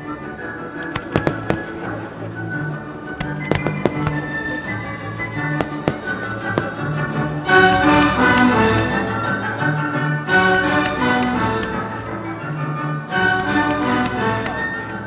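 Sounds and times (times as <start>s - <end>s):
background music: 0.0s - 15.0s
firework shells bursting: 0.9s - 2.0s, 3.2s - 4.7s, 5.5s - 7.4s.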